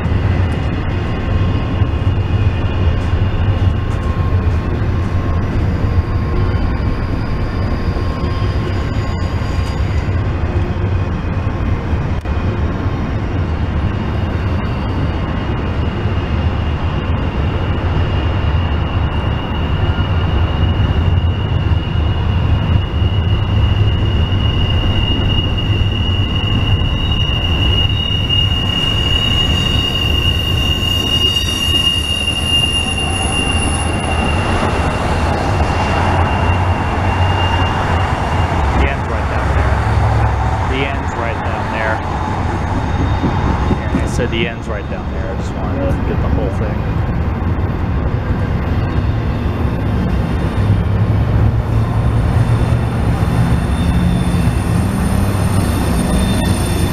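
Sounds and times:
high wheel squeal: 0:00.0 - 0:11.4, 0:13.8 - 0:50.9, 0:51.6 - 0:56.9
train wheels rumbling on rails: 0:00.0 - 0:56.9.

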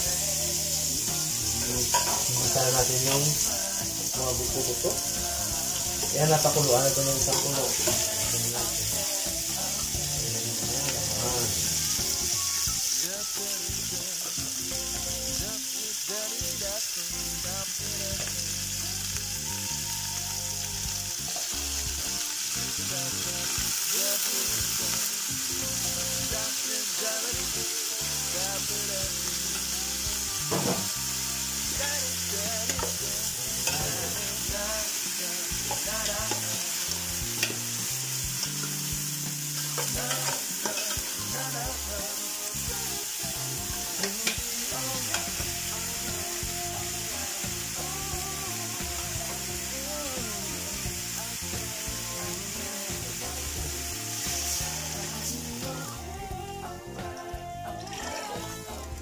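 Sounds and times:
meat frying in hot oil: 0:00.0 - 0:56.4, 0:57.0 - 0:59.0.

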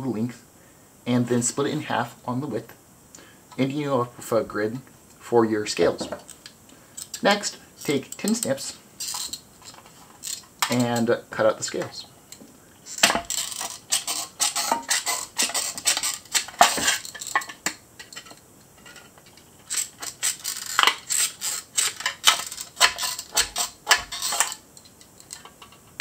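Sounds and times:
tin snips cutting sheet metal: 0:19.7 - 0:24.6.

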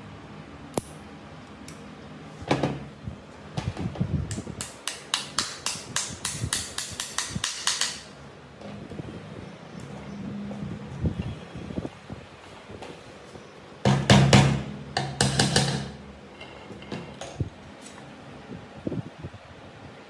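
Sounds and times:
hammer tapping on metal: 0:04.6 - 0:08.1, 0:13.9 - 0:16.0.

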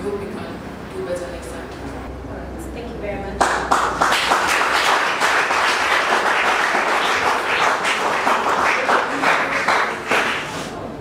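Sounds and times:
children applauding: 0:03.4 - 0:10.6.

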